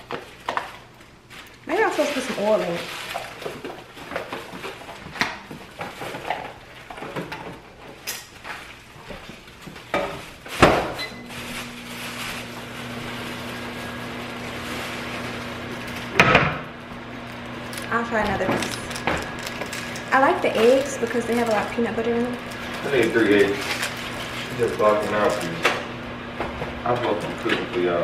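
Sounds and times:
microwave oven humming: 0:07.8 - 0:28.0.

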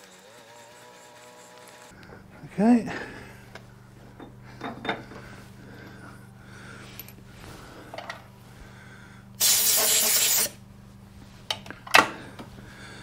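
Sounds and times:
steady low hum: 0:01.6 - 0:13.0
compressed air blow gun hiss: 0:09.4 - 0:10.6.

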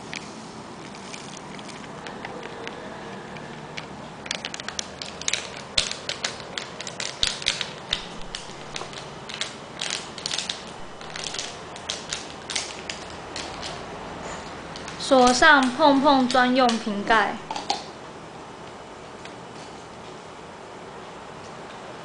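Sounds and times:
plastic packaging crinkling: 0:00.0 - 0:13.8.

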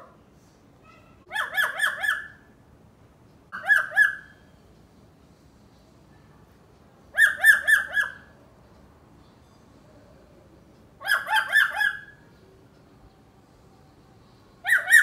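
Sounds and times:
parrot mimicking dog bark: 0:01.3 - 0:02.4, 0:03.5 - 0:04.3, 0:07.2 - 0:08.3, 0:11.0 - 0:12.1.

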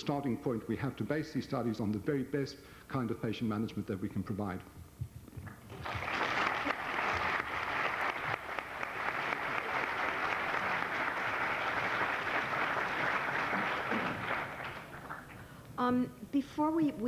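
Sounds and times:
large audience applauding: 0:05.5 - 0:15.6.

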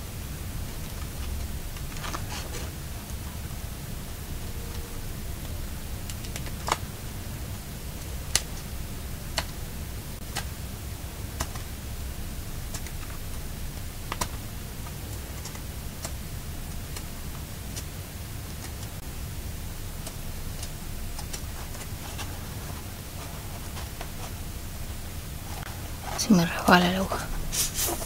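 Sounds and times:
steady low hum: 0:00.0 - 0:28.0
paper pages handled: 0:20.0 - 0:24.6.

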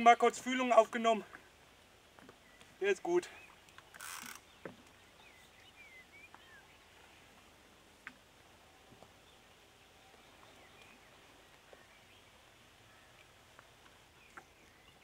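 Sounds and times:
small clicks: 0:03.6 - 0:04.4.

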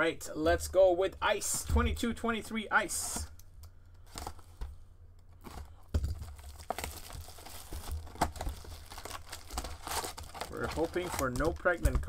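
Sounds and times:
cardboard and wrapping rustling: 0:05.4 - 0:12.0.

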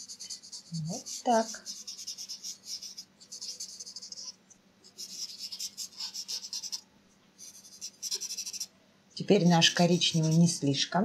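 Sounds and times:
paper rubbing pastel on paper: 0:00.0 - 0:04.3, 0:04.9 - 0:06.8, 0:09.7 - 0:10.6.

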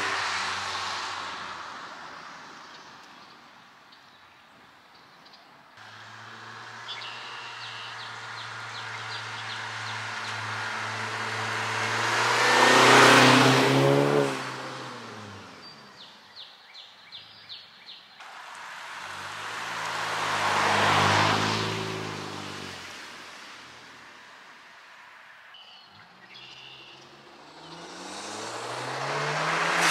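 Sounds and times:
car exhaust passing by: 0:05.8 - 0:16.0, 0:18.3 - 0:23.0, 0:26.5 - 0:29.9.

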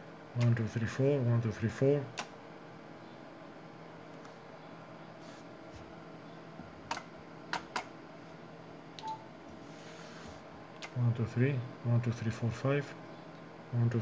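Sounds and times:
steady low hum: 0:00.0 - 0:14.0
button clicks: 0:09.0 - 0:09.2.

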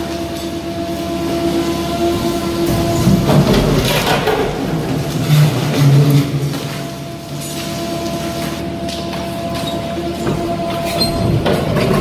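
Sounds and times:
hydraulic machine whine: 0:00.0 - 0:12.0
low rumble: 0:01.9 - 0:06.6.

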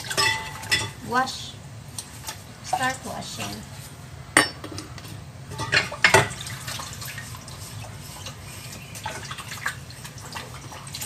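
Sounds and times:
dishes clinking: 0:00.0 - 0:01.0, 0:04.4 - 0:04.9, 0:05.5 - 0:06.5
water splashing and running: 0:06.0 - 0:11.0
sponge scrubbing a bowl: 0:06.4 - 0:11.0.

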